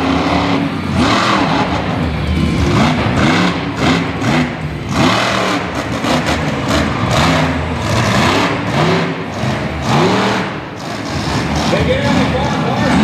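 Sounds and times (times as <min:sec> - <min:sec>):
truck engine revving hard: 0:00.0 - 0:13.0.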